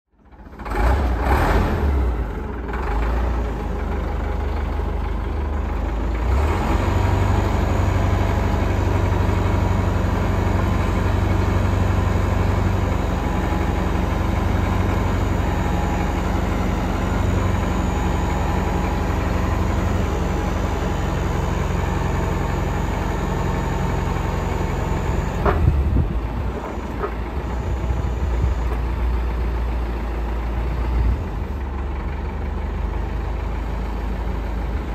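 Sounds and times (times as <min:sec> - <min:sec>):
diesel engine running: 0:00.1 - 0:34.9.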